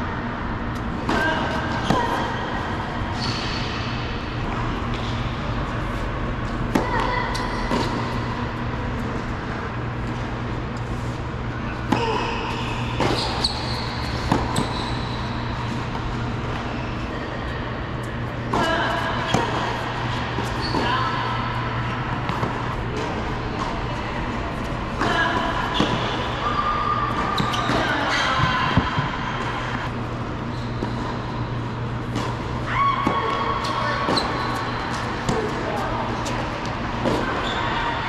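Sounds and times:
steady low hum: 0.0s - 38.0s
shoes squeaking on court: 11.9s - 17.3s, 19.2s - 21.2s, 27.0s - 32.2s, 33.3s - 38.0s
racket striking tennis ball: 14.0s - 14.7s.

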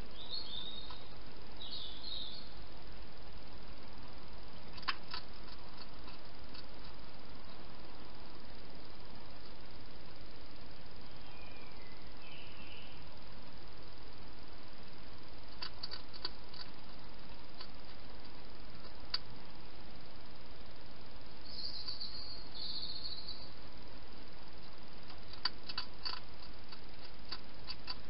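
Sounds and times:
steady hiss: 0.0s - 28.0s
hedgehog crunching food: 4.7s - 7.0s, 15.5s - 19.3s, 25.0s - 28.0s.

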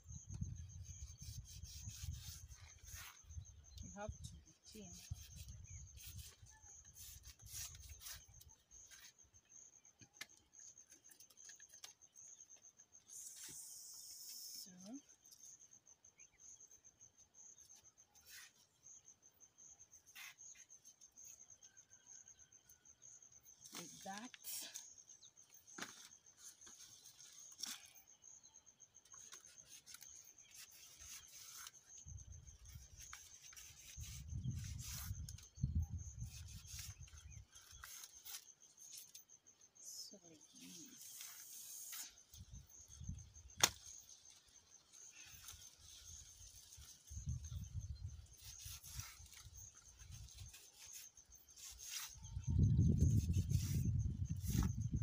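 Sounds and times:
high insect chirp: 0.0s - 55.0s
machete slicing leaf: 43.6s - 44.0s.

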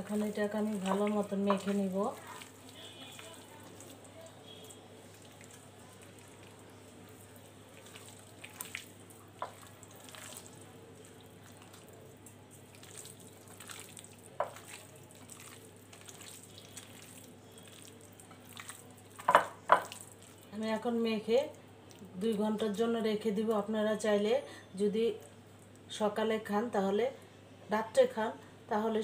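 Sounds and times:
hand squelching wet meat: 0.0s - 20.5s.

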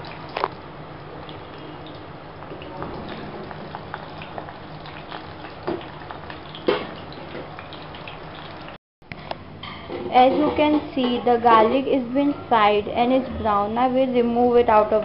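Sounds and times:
oil sizzling: 0.0s - 8.8s.

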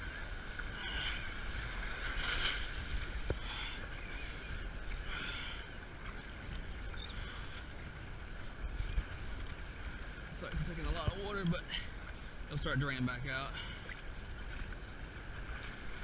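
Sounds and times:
wind rumble on microphone: 0.0s - 5.2s
paddle splashes: 0.0s - 16.0s
surf and water rushing: 0.0s - 16.0s.

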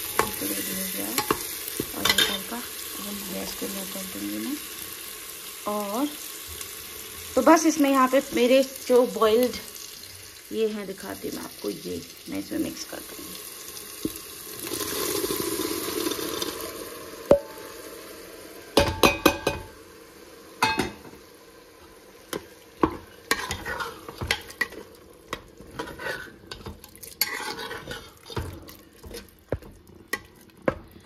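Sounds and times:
spoon scraping a pan: 0.0s - 2.6s, 22.3s - 31.0s
light sizzle: 0.0s - 31.0s
spoon knocking against pan: 18.8s - 19.7s, 20.6s - 21.1s.

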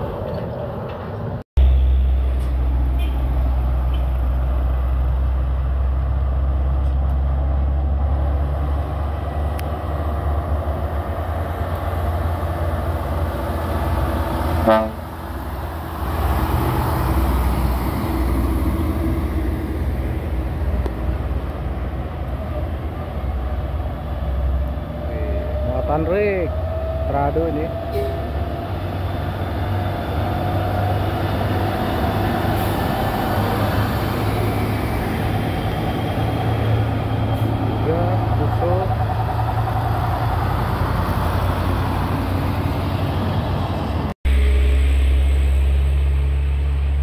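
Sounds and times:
diesel truck engine rumbling: 0.0s - 47.0s
truck horn toot: 2.9s - 3.3s, 14.6s - 15.2s.

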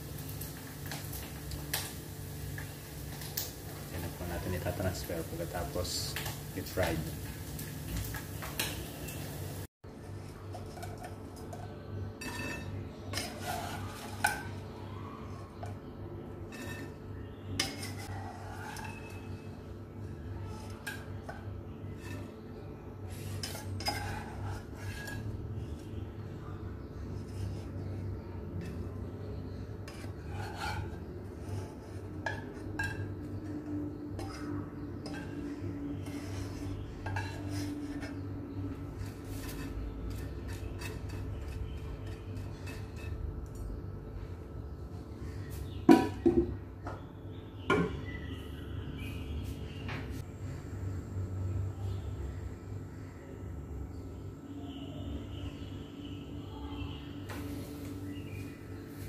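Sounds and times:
steady low hum: 0.0s - 59.0s
wooden spatula scraping a pot: 12.2s - 14.7s, 15.3s - 19.6s, 20.4s - 26.0s, 27.0s - 43.3s.

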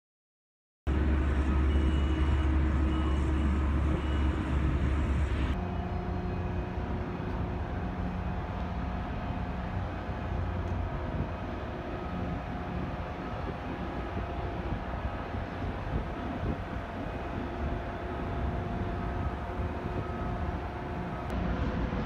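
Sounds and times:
low rumble and machinery hum: 0.9s - 22.0s
steady mid-pitched hum: 0.9s - 22.0s
short high beeps: 1.4s - 5.2s.

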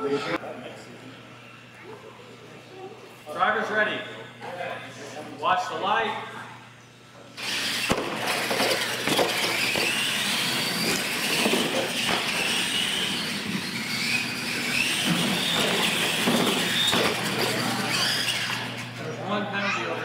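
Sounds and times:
electric motors whining: 7.3s - 20.0s
toy trucks landing knocks: 7.7s - 10.0s.

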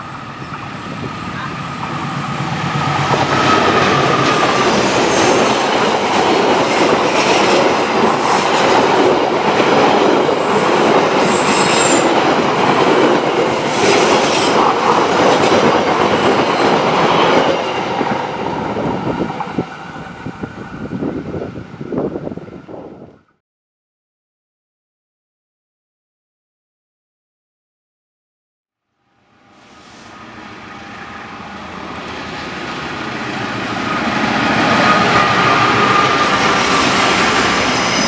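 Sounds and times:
train wheels rumbling over rails: 0.0s - 21.2s, 29.8s - 38.0s
high wheel squeal: 11.2s - 13.1s, 33.1s - 38.0s.

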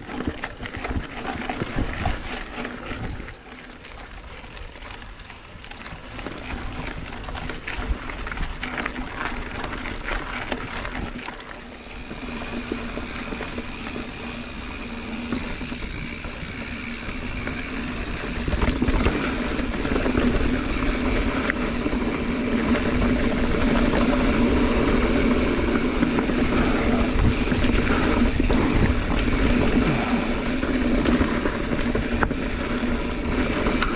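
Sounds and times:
bike tyre rumble on dirt: 0.0s - 33.9s
constant hum: 0.0s - 33.9s
wind noise: 11.7s - 33.9s.

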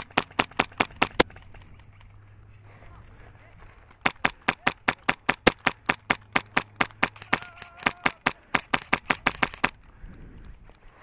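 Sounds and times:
airsoft rifle firing single shots: 4.0s - 9.7s.

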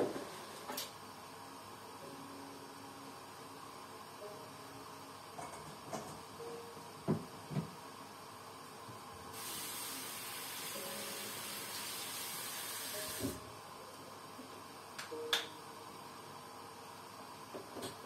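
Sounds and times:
steady hiss of mist: 9.3s - 13.5s.

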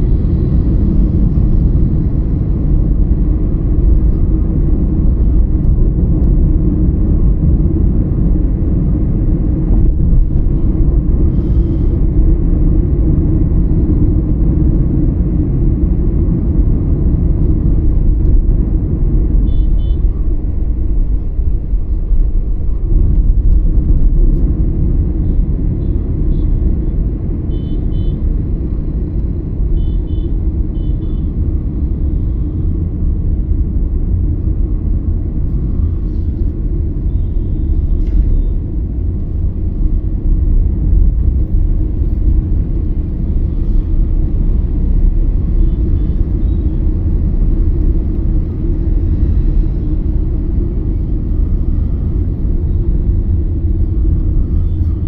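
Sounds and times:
road vehicle rumbling: 0.0s - 55.0s.

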